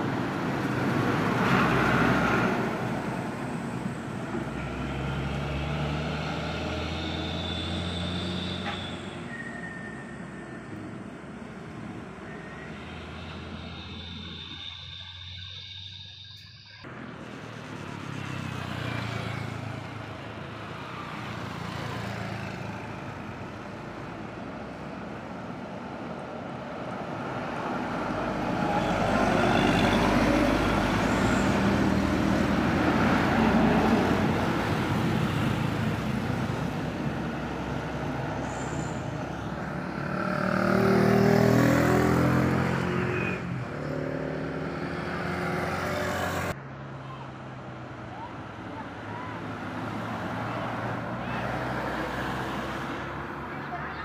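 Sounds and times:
diesel truck passing: 0.0s - 54.0s
road traffic: 0.0s - 54.0s
vehicle engine passing: 27.8s - 47.0s
motorcycle passing: 39.0s - 46.6s.

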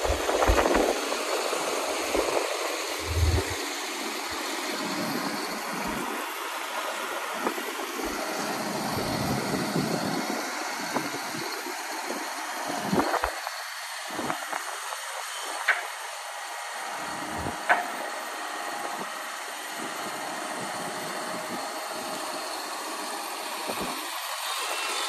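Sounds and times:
diesel engine idling: 0.0s - 9.5s.

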